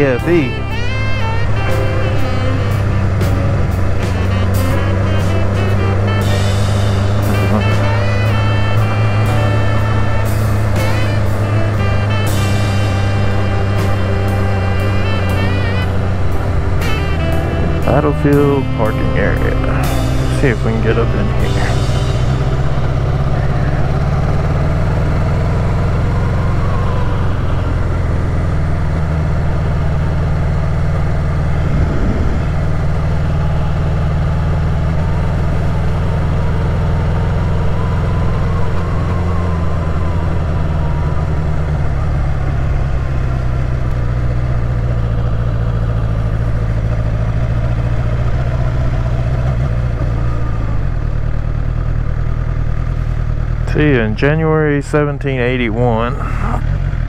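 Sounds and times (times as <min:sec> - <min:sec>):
motorcycle engine cruising: 0:00.0 - 0:57.0.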